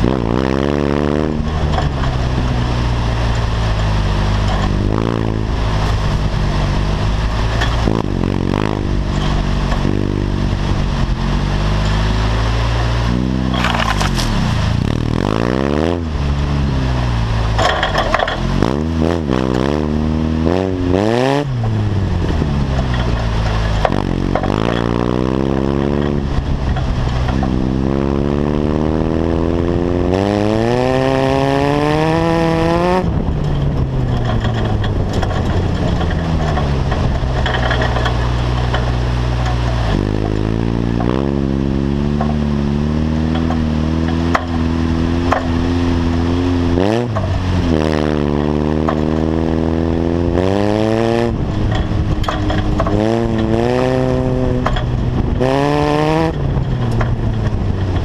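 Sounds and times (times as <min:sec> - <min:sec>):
buggy engine revving: 0:00.0 - 0:58.0
rough rumble on gravel: 0:12.8 - 0:30.7, 0:32.0 - 0:58.0.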